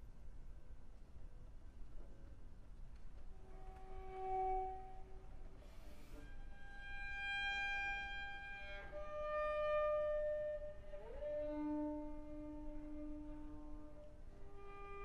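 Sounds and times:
solo cello bowing long notes: 3.4s - 15.0s.

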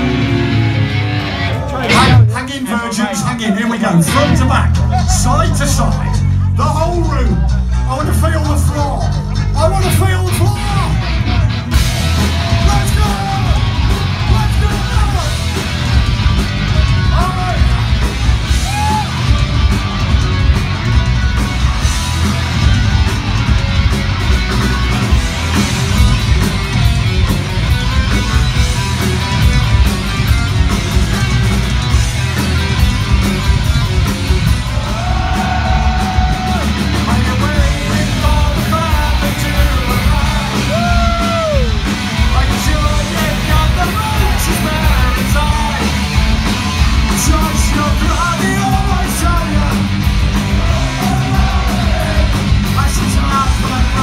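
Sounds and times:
bass guitar: 0.0s - 54.0s
distorted electric guitars: 0.0s - 54.0s
drums: 0.0s - 54.0s
shouted vocals: 10.4s - 15.4s, 17.0s - 19.3s, 34.5s - 54.0s.

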